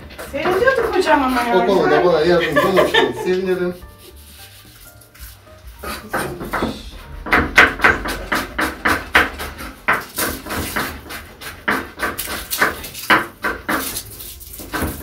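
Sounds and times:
knife slicing on wooden board: 3.8s - 6.0s, 9.4s - 15.0s.

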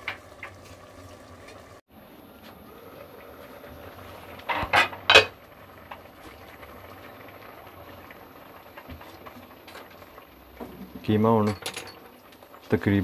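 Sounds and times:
meat simmering in a pot: 0.0s - 13.0s
pot lid clanking: 4.5s - 5.4s.

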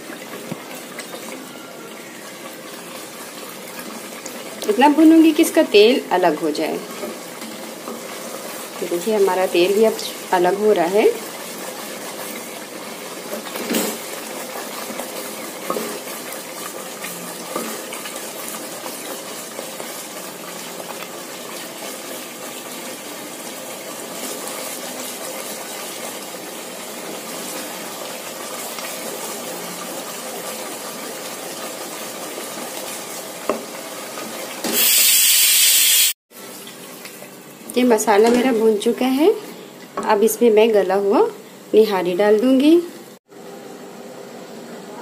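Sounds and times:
paste sizzling in hot oil: 0.0s - 36.2s
loud hiss burst: 34.7s - 36.2s.

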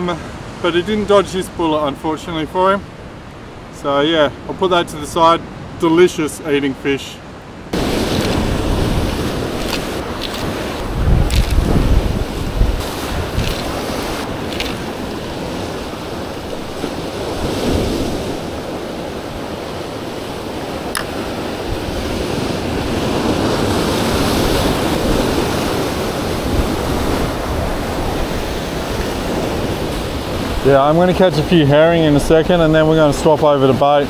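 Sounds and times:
ocean waves washing against rocks: 0.0s - 34.0s
wind on microphone: 7.6s - 31.0s.

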